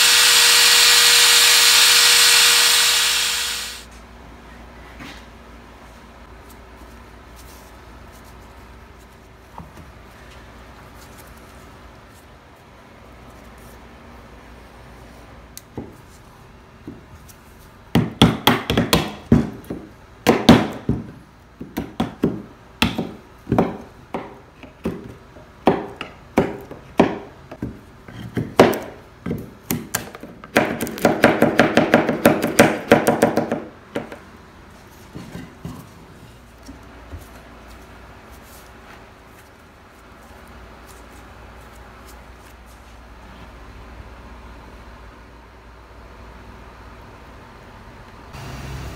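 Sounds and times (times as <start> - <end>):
mallet striking chisel into wood: 18.0 - 27.8.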